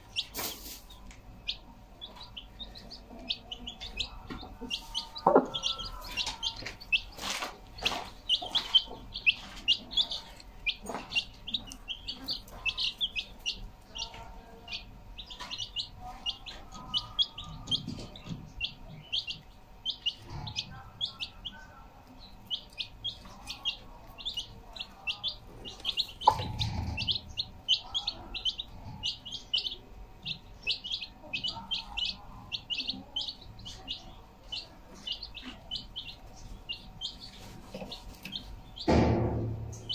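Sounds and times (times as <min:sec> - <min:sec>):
chicks peeping: 0:00.0 - 0:39.9
loud knock: 0:38.8 - 0:39.8.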